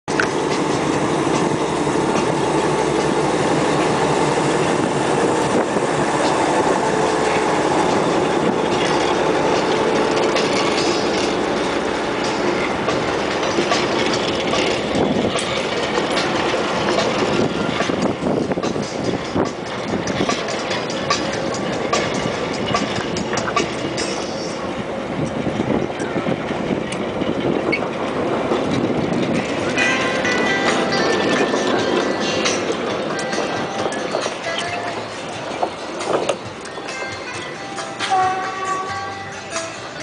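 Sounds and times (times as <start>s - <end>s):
diesel locomotive engine: 0.0s - 40.0s
train wheels clicking over rail joints: 0.1s - 40.0s.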